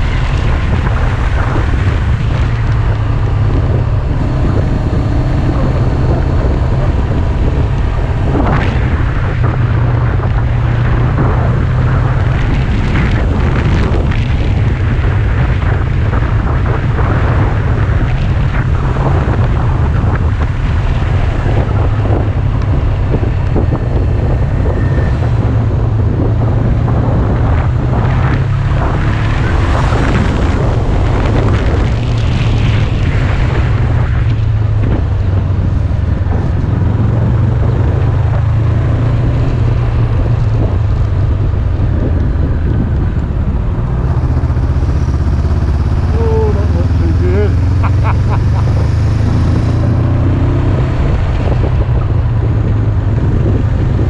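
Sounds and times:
wind buffeting microphone: 0.0s - 54.0s
motorcycle engine running: 39.2s - 54.0s.

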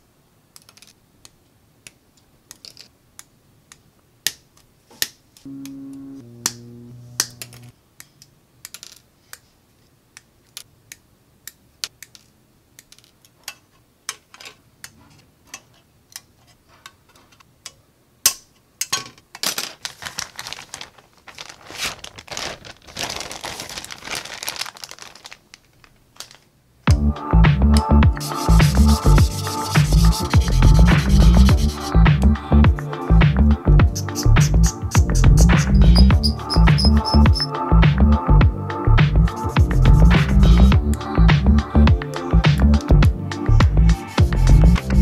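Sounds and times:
plastic rustling: 19.4s - 26.5s
background music: 26.9s - 45.0s.

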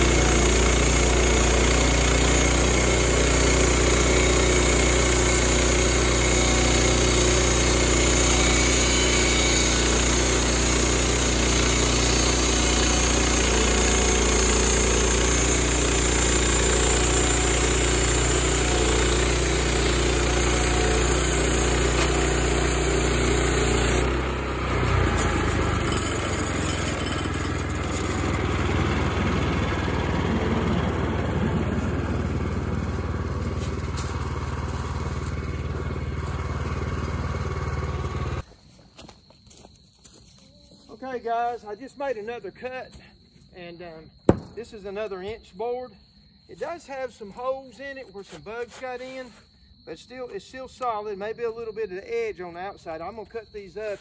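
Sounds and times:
band saw blade cutting wood: 0.0s - 35.4s
engine rough idle: 0.0s - 38.4s
sawmill engine running under load: 0.0s - 38.4s.

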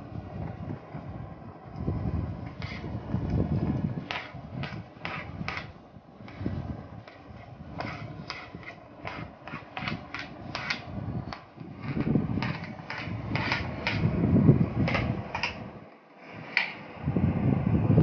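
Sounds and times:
spoon scraping cutting board: 2.5s - 2.9s, 4.1s - 14.1s.

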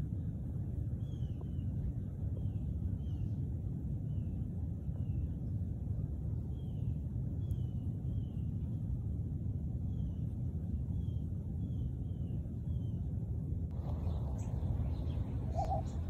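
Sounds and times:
steady low rumble: 0.0s - 16.0s
bird chirping faintly: 13.7s - 16.0s.

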